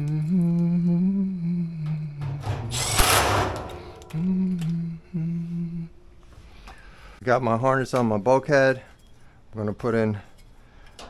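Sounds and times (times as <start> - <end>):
power driver whining: 2.2 - 4.9.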